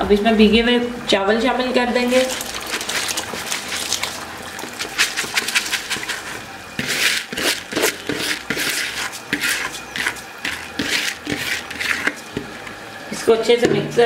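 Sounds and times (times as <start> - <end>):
water boiling: 1.3 - 13.6
rice pattering into water: 2.2 - 12.3.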